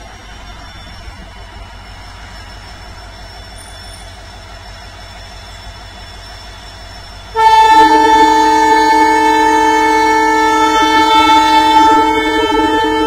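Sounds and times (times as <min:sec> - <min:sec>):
diesel locomotive idling: 0:00.0 - 0:13.0
two-tone air horn: 0:07.4 - 0:13.0.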